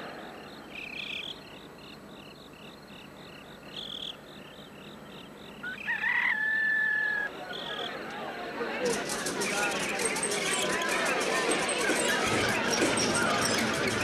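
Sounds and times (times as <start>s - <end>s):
crickets chirping: 0.0s - 8.0s.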